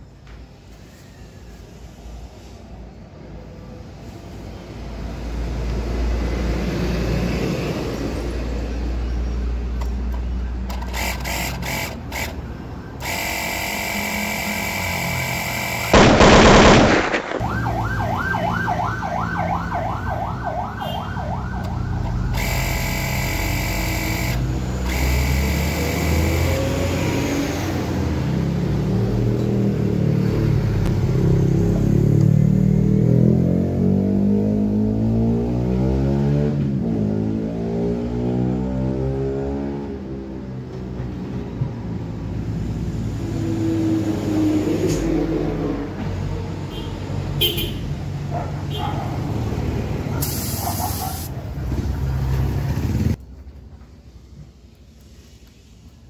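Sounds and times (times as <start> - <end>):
electric air compressor running: 10.7 - 16.0, 22.3 - 26.9
loud burst: 15.4 - 17.9.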